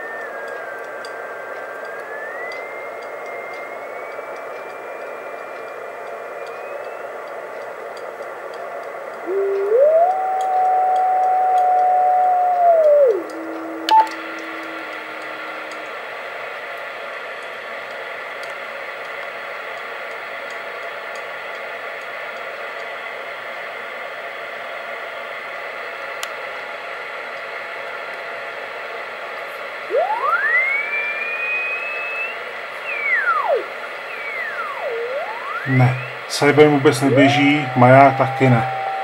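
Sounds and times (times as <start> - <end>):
radio whistle gliding in pitch: 0.0 - 7.8, 9.2 - 16.6, 29.9 - 39.0
click: 0.2 - 3.7, 4.4 - 15.0, 29.9 - 36.2, 37.5 - 39.0
radio receiver hiss: 29.9 - 39.0.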